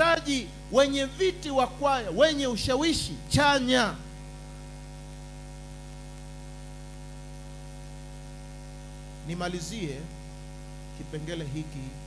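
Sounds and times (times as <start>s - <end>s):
man speaking: 0.0s - 4.1s, 9.2s - 10.2s, 11.0s - 12.0s
electrical mains hum: 0.0s - 12.0s.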